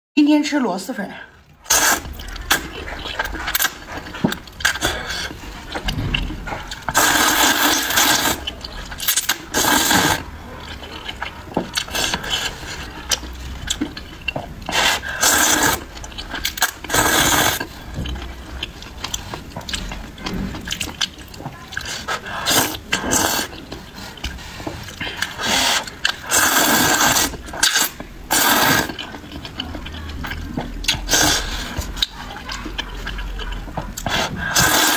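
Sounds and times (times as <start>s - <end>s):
wet chewing: 1.4s - 34.9s
noodle slurping: 1.6s - 34.9s.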